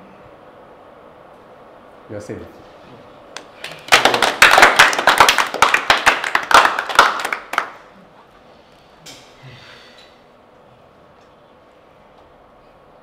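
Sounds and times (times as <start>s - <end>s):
people clapping hands: 3.4s - 8.0s.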